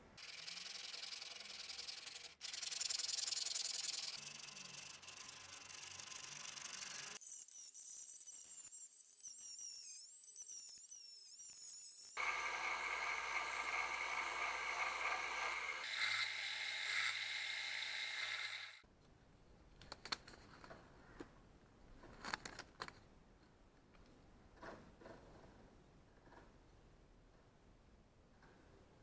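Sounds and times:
rotary tool whining on steel: 0.2 - 18.8
belt sander grinding steel: 12.2 - 18.8.

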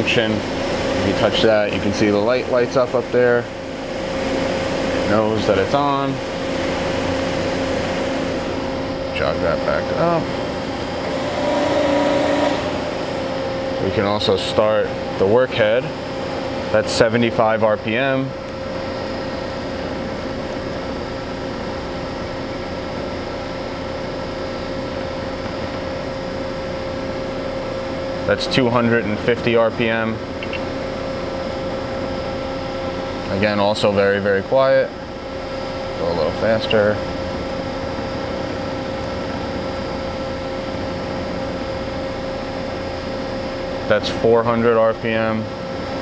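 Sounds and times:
grinding machine humming with whine: 0.0 - 46.0
grinder machine hum: 3.5 - 22.9.

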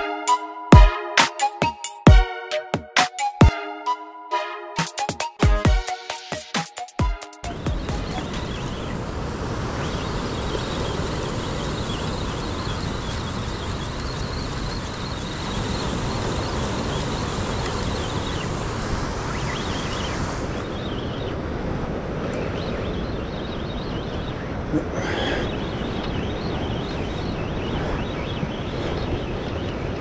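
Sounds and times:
wind buffeting microphone: 8.0 - 30.0.

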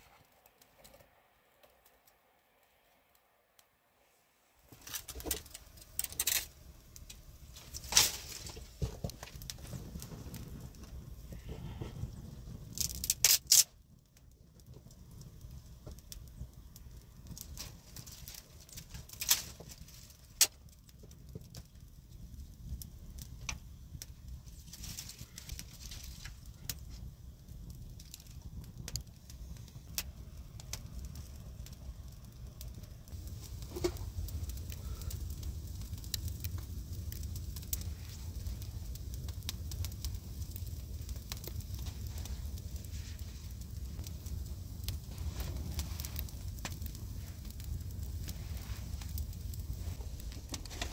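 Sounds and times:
sharp pops and cracks of fire: 0.0 - 3.7, 4.6 - 50.9
campfire crackling: 0.0 - 3.8, 4.4 - 50.9
low steady rumble: 22.0 - 50.9.

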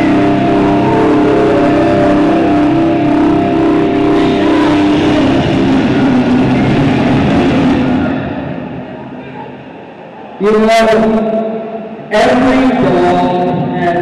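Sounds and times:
car engine revving: 0.0 - 10.0
loud entrance music: 0.0 - 10.6.

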